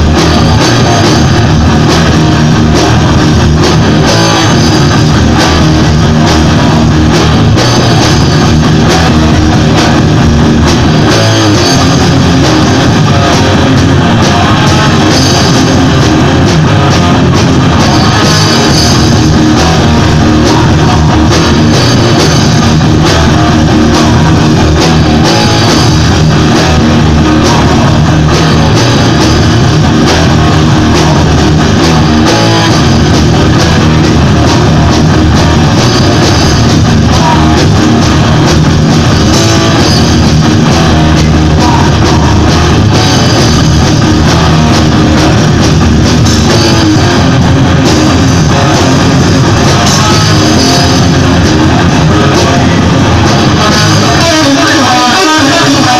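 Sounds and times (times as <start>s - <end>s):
drum kit: 0.0s - 55.9s
electric guitars: 0.0s - 55.9s.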